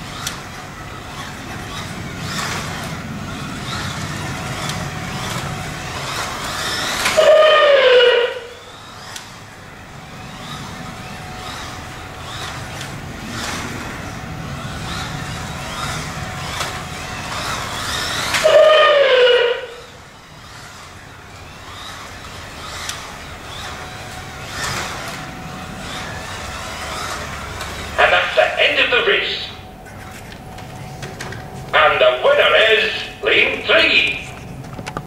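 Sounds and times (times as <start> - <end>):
car rattling along plastic track: 0.0 - 28.0
slot car motor whining: 0.0 - 35.0.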